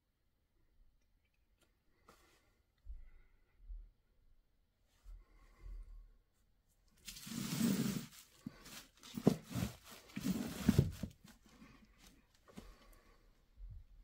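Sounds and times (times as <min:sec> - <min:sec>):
bubble wrap crinkling: 0:07.0 - 0:11.4.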